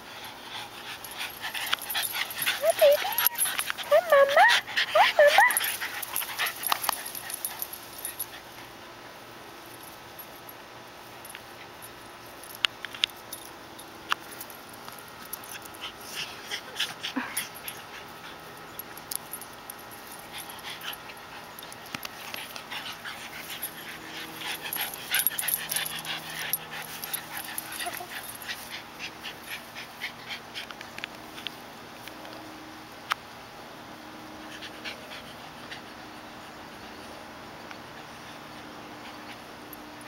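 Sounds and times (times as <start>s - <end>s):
small dogs whimpering: 1.1s - 6.6s, 22.4s - 30.5s.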